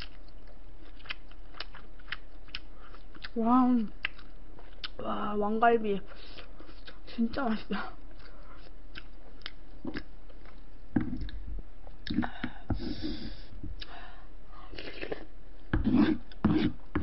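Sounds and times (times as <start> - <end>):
chewing and wet mouth noises: 0.0 - 5.0, 6.1 - 13.0.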